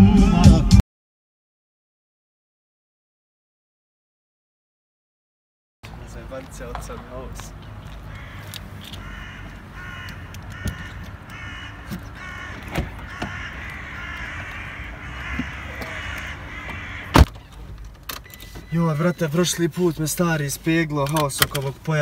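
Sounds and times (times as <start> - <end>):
crows cawing: 7.8 - 17.2
car door slamming: 11.8 - 13.8, 15.2 - 18.7.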